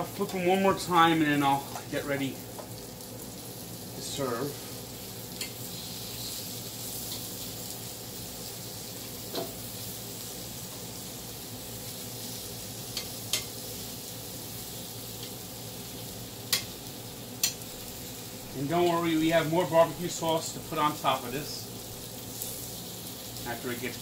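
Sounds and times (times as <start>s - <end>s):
chicken sizzling on a grill: 0.0s - 24.0s
utensil clicking against grill: 12.9s - 13.5s, 16.5s - 16.7s, 17.4s - 17.6s.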